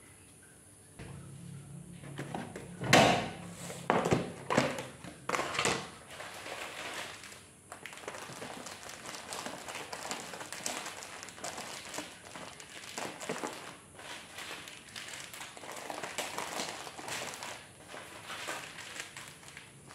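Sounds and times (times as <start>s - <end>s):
household items knocking on shelves: 2.0s - 5.9s.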